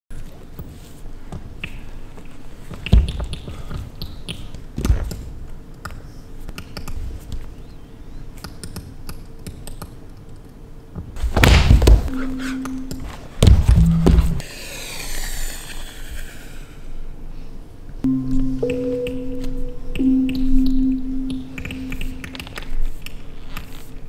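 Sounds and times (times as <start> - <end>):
bare feet thudding on stage floor: 13.4 - 14.4.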